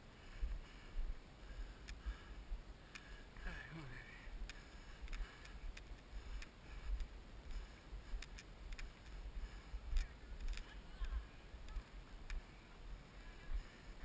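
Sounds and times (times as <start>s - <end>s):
wind rumble on camera: 4.4s - 14.0s.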